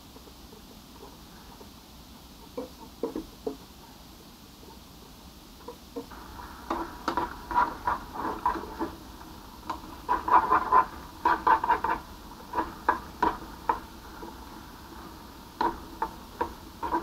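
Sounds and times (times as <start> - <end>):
fork scraping in frying pan: 6.1 - 17.0.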